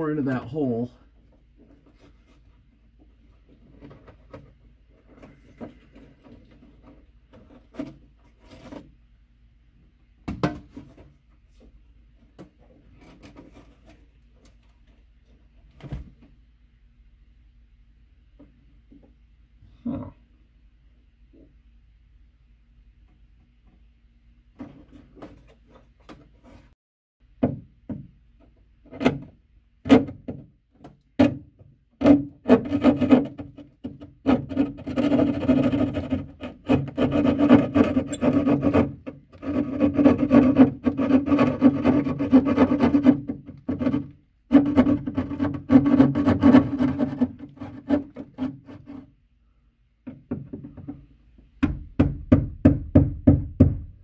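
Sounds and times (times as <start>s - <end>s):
scrapes and knocks: 1.2s - 9.0s, 10.3s - 16.3s, 24.6s - 26.8s, 32.0s - 49.2s
hand saw rasping through drywall: 32.0s - 49.2s.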